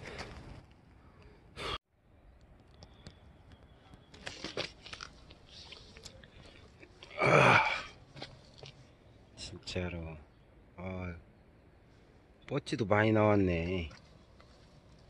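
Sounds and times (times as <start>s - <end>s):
crunching and rustling: 3.6s - 7.2s.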